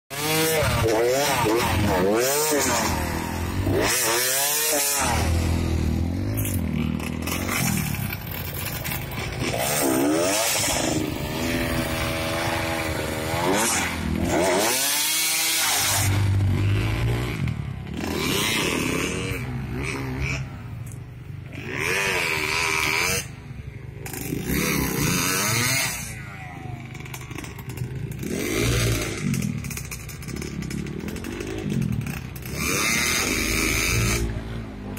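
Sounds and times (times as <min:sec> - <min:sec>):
dirt bike engine revving: 0:00.1 - 0:34.9.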